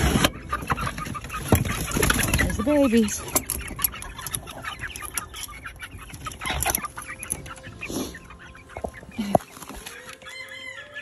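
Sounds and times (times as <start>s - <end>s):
young chickens clucking: 0.0s - 11.0s.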